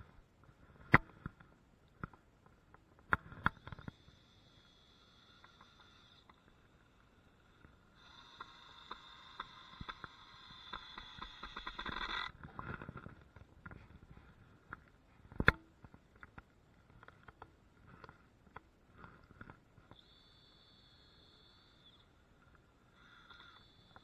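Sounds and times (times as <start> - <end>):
power tool whine: 8.0 - 12.3
clicks and light knocks on wood: 9.8 - 20.0.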